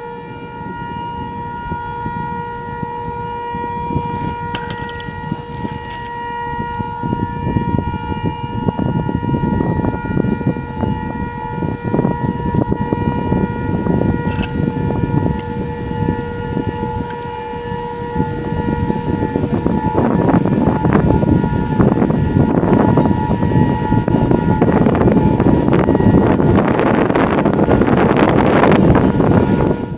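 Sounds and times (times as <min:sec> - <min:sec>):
gusty wind: 0:00.0 - 0:29.9
warning siren steady tone: 0:00.0 - 0:29.9.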